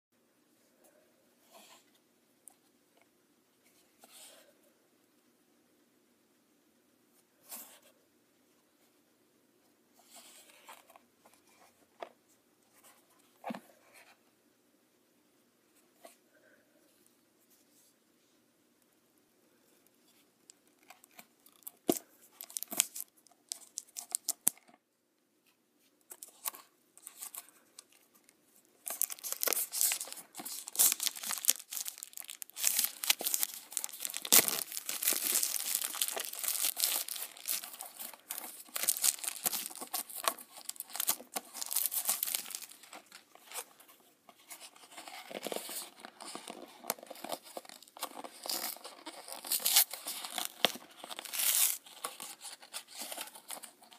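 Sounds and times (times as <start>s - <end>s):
cellophane tearing and crinkling: 21.4s - 24.5s, 28.8s - 43.6s, 45.1s - 53.9s
cardboard box being handled: 28.8s - 43.7s.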